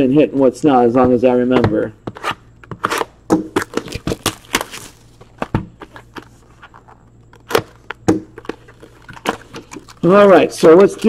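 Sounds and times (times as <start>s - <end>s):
cardboard scraping: 2.0s - 11.0s
plastic wrap crackling: 3.6s - 11.0s.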